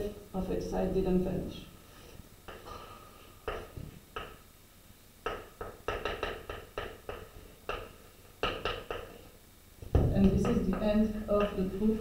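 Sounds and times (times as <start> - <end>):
chalk tapping and scratching on blackboard: 3.4 - 4.4, 5.2 - 9.3, 10.2 - 12.0.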